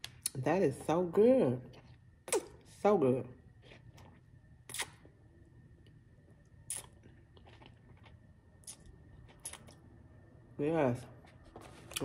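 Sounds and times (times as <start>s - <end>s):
crunchy bites of food: 3.6s - 5.2s, 6.6s - 9.8s.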